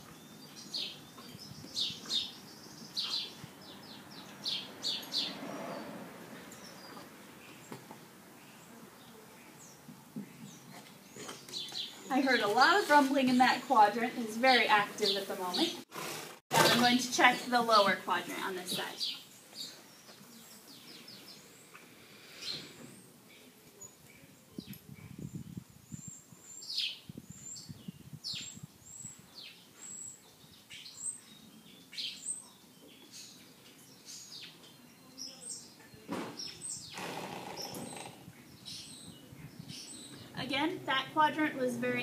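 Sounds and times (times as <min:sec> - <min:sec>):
small birds chirping: 0:00.0 - 0:15.9, 0:16.6 - 0:42.0
rustling noise: 0:11.1 - 0:13.5.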